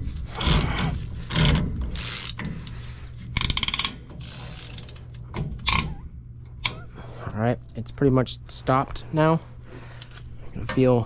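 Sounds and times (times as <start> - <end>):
ratchet wrench clicking: 1.3 - 2.5, 3.4 - 5.0.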